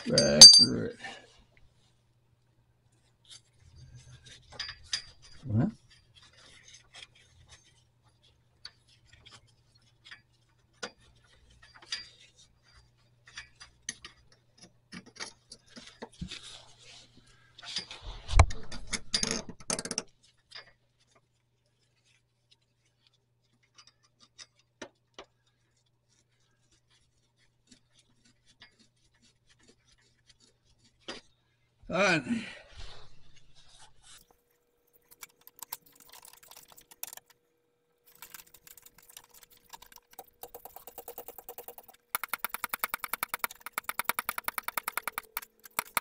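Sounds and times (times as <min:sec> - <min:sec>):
metallic clicks and rubbing of cable: 0:34.0 - 0:37.4, 0:38.0 - 0:46.0.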